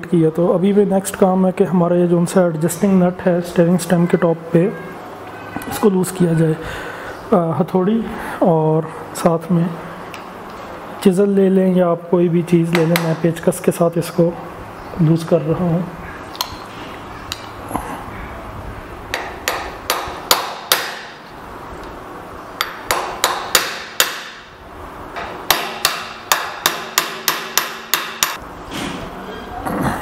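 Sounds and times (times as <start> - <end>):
hammer striking screwdriver: 25.2 - 28.4.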